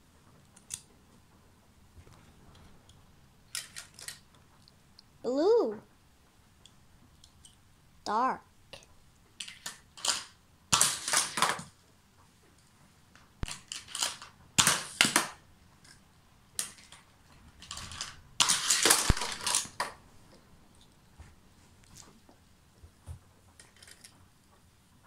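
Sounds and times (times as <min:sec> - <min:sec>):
toy cars clattering: 0:03.5 - 0:04.3, 0:09.4 - 0:11.8, 0:13.4 - 0:16.0, 0:16.6 - 0:20.0, 0:23.6 - 0:24.2.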